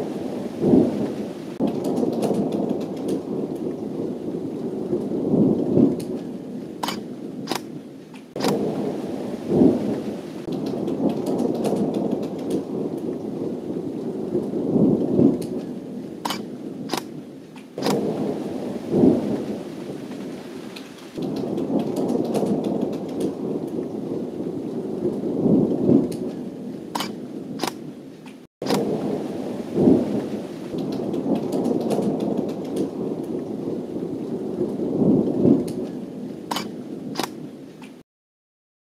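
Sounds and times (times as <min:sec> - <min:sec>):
rumbling thunder: 0:00.0 - 0:07.8, 0:08.4 - 0:28.0, 0:28.6 - 0:37.5
steady rain: 0:00.0 - 0:38.0
raindrop clicks: 0:01.0 - 0:03.8, 0:05.7 - 0:08.7, 0:10.4 - 0:13.2, 0:15.0 - 0:18.1, 0:20.6 - 0:23.9, 0:25.9 - 0:29.0, 0:30.7 - 0:33.5, 0:35.2 - 0:38.0.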